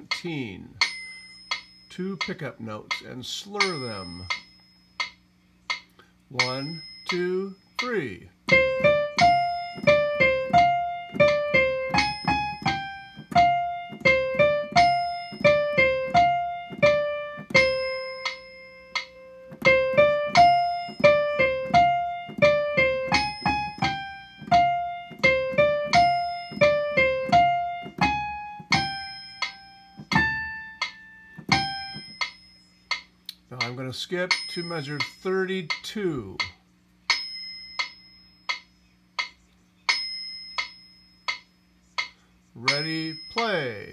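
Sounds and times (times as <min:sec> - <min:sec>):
piano melody: 0:08.5 - 0:32.4.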